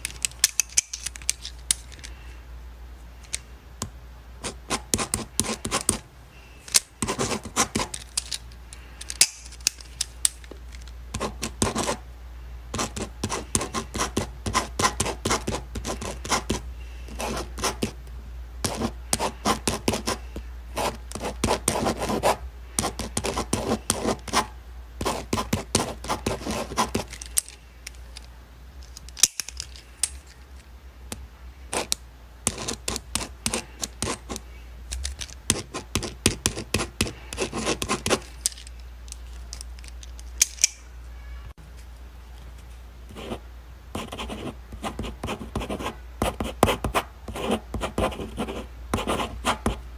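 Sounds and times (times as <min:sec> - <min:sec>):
ballpoint pen writing on paper: 0:04.4 - 0:06.0, 0:07.0 - 0:07.9, 0:11.2 - 0:12.0, 0:12.8 - 0:18.0, 0:18.6 - 0:20.2, 0:20.8 - 0:27.1, 0:31.7 - 0:34.4, 0:35.5 - 0:38.2, 0:44.0 - 0:49.8.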